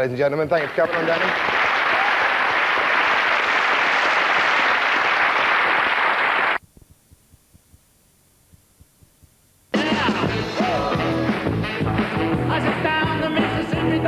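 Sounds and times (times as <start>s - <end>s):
studio audience applauding: 0.5s - 6.6s.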